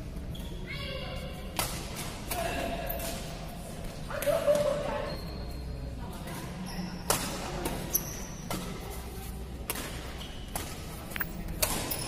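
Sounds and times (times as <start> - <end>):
rackets hitting shuttlecock: 7.0 - 8.8, 9.6 - 12.0.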